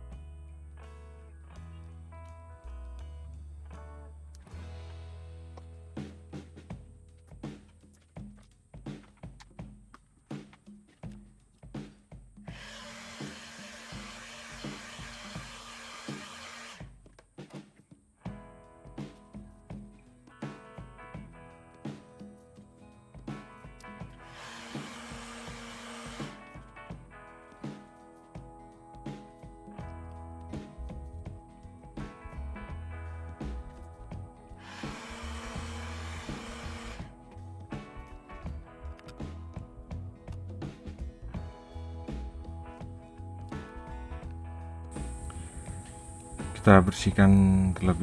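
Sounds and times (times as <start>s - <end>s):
heat gun blowing hot air: 12.5s - 16.9s, 24.2s - 26.4s, 34.6s - 37.1s
background music with beat: 16.8s - 48.0s.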